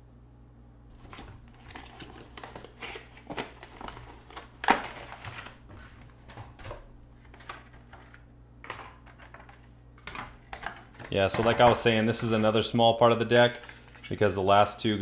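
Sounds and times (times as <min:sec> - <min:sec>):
plastic blister tray crinkling: 0:00.9 - 0:14.4
cardboard box rustling: 0:01.0 - 0:09.7.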